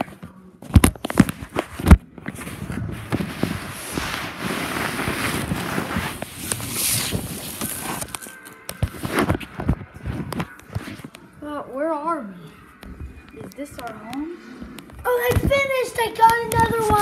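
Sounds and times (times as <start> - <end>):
rustling and rubbing on microphone: 0.0 - 11.3.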